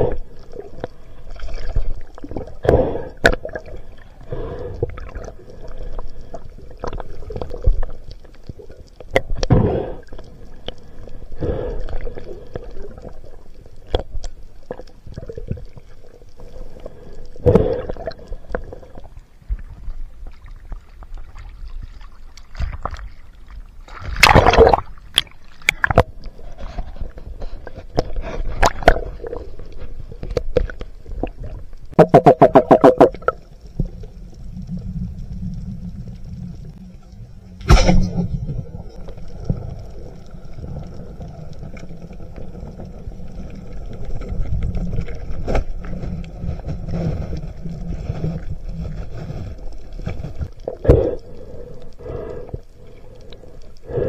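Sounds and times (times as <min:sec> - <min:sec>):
faint steady hum: 0:00.0 - 0:32.1, 0:32.7 - 0:54.0
underwater bubbling and gurgling: 0:00.0 - 0:54.0
underwater knocks: 0:32.0 - 0:33.4.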